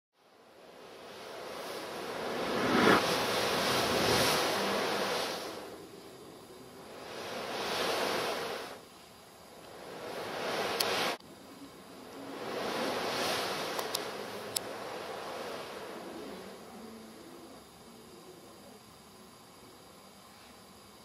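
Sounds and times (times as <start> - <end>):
surf-like rushing noise: 0.5 - 6.0, 6.6 - 8.8, 9.7 - 11.2, 12.0 - 17.1.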